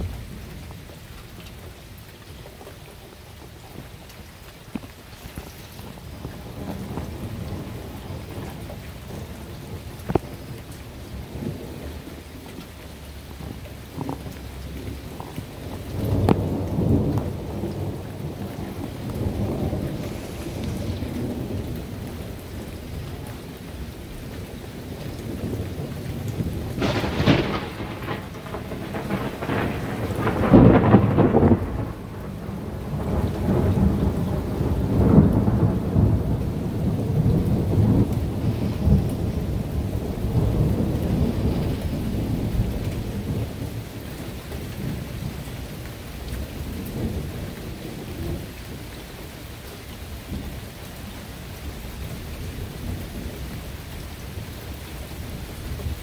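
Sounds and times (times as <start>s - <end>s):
steady rain: 0.0s - 56.0s
thunder rolling rumble: 2.5s - 56.0s
thunder crack: 13.3s - 23.3s, 25.2s - 45.3s.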